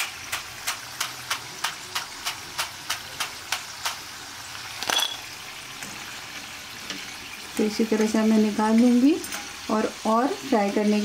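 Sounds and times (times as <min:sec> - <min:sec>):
fried pieces rattling: 0:00.0 - 0:05.3
frying oil hiss: 0:00.0 - 0:11.0.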